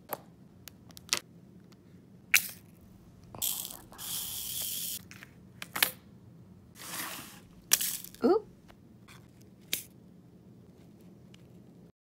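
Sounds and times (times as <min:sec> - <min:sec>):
rustling hiss: 0:02.8 - 0:05.0.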